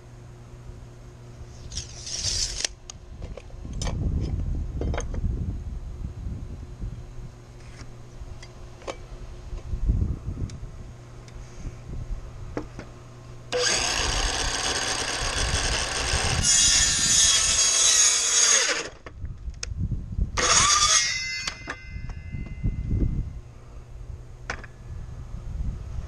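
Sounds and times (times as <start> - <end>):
circular saw cutting wood: 13.5 - 19.0, 20.4 - 22.2.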